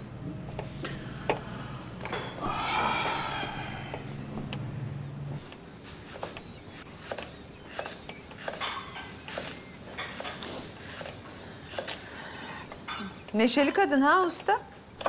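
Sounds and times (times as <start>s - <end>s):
dishes and cutlery clinking: 8.6s - 9.2s.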